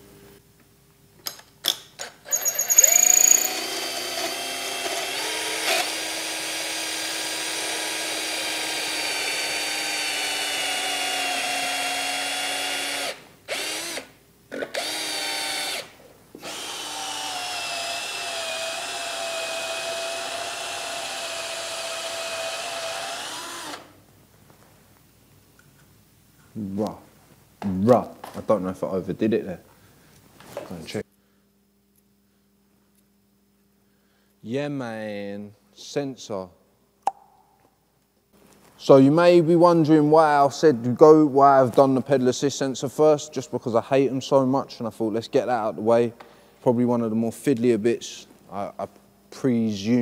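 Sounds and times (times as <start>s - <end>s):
drill clicks: 2.0s - 7.8s, 21.4s - 23.9s
cordless drill boring: 2.3s - 23.9s.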